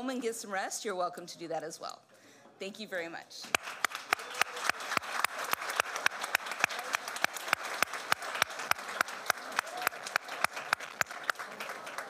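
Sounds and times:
close hand claps: 3.5s - 12.0s
crowd applause: 3.5s - 12.0s.

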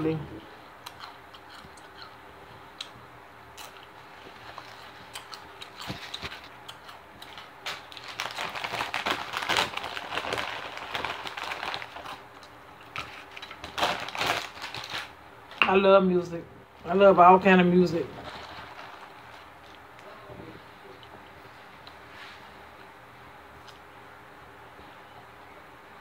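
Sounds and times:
crunching chips: 3.6s - 15.6s, 18.2s - 20.1s
chip bag crinkling: 3.6s - 15.8s, 17.8s - 20.1s.

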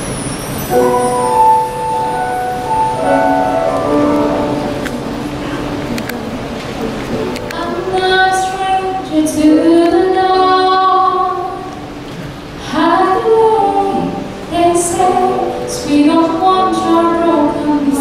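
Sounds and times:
choir singing held chords: 0.6s - 11.6s.

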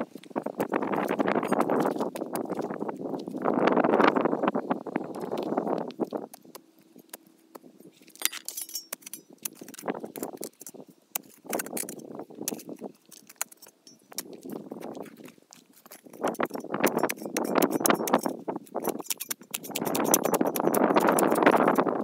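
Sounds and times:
shovel scraping into soil: 6.3s - 21.8s
sharp clicks and clinks: 8.1s - 14.6s, 15.8s - 21.9s.

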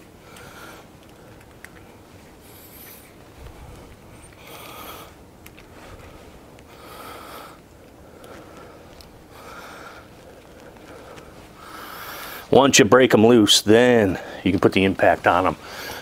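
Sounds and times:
person breathing hard: 0.1s - 1.5s, 2.4s - 12.5s, 15.6s - 16.0s.

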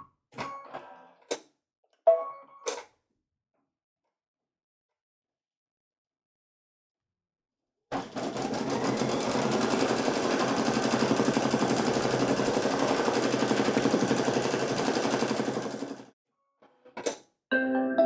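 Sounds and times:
embroidery machine stitching: 7.9s - 16.1s.

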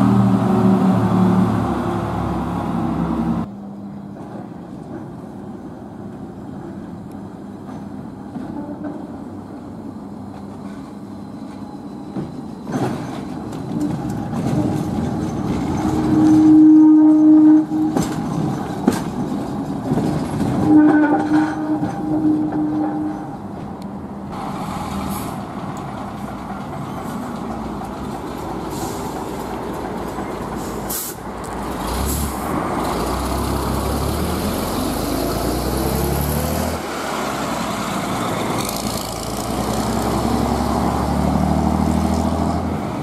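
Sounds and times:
bus engine pulling away: 0.0s - 3.5s, 24.3s - 43.0s
tram wheels knocking on rails: 17.6s - 22.7s.

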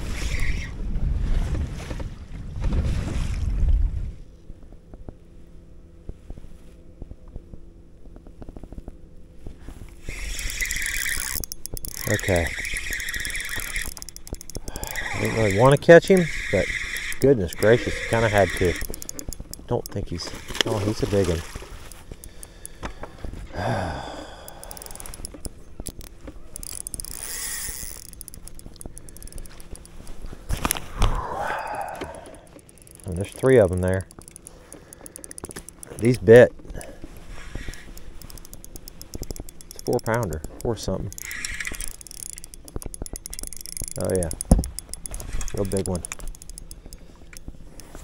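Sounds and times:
fishing reel ticking: 0.0s - 0.8s, 9.7s - 48.0s
reel drag squealing: 0.0s - 0.8s, 9.9s - 23.0s, 23.7s - 30.3s, 30.9s - 48.0s
faint steady hum: 0.0s - 48.0s.

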